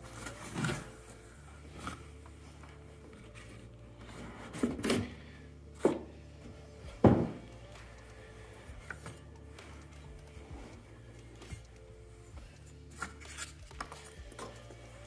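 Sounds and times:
cardboard packaging knocks and thumps: 7.0s - 7.4s.

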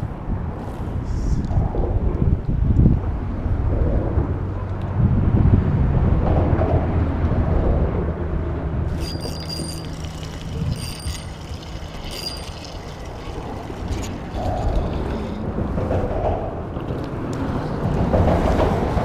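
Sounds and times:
wind rumble on microphone: 0.0s - 19.0s
fishing reel clicks: 8.9s - 14.8s.

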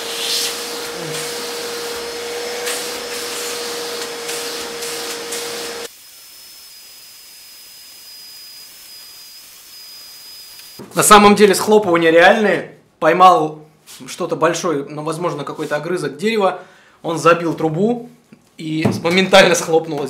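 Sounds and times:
shop vacuum motor whine: 0.0s - 10.8s.

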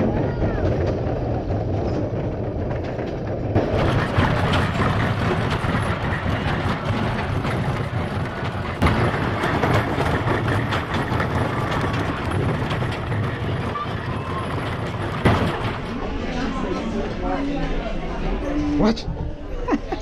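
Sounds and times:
wheels rattling on rails: 0.0s - 18.4s.

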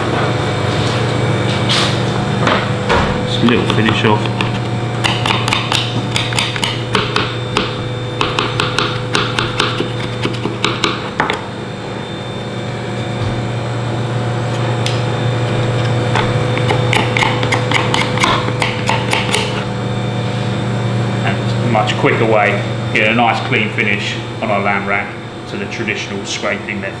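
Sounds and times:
steady low hum: 0.0s - 27.0s
knife scraping bone: 9.4s - 10.6s.

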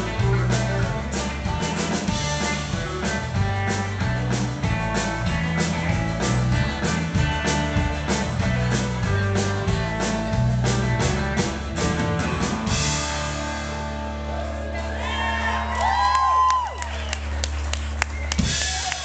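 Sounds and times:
drumbeat: 0.0s - 13.4s
live rock band playing: 0.0s - 19.0s
audience whooping and shouting: 14.1s - 19.0s.

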